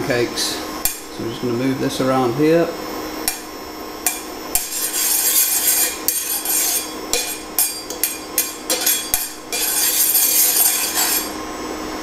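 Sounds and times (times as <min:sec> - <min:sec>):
metal spatula scraping frying pan: 0:04.1 - 0:11.4.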